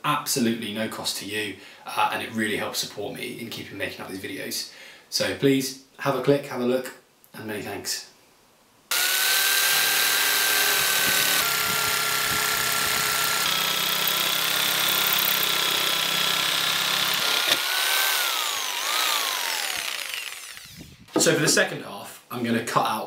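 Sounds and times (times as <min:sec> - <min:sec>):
jigsaw motor whine: 0:08.9 - 0:21.2
saw blade rasping through wood: 0:08.9 - 0:21.3.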